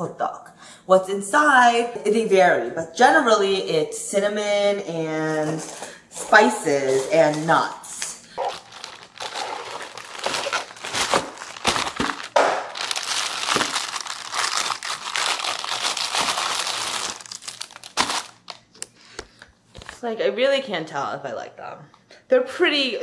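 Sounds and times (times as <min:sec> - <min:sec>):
plastic bag crinkling: 0:06.4 - 0:20.0.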